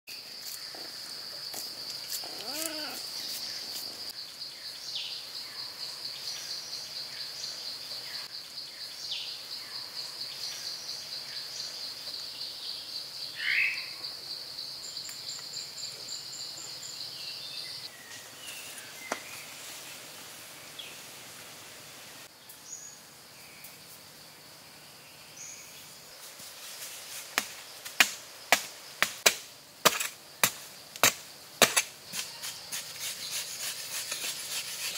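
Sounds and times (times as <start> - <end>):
digging tool striking dirt: 27.4 - 34.9.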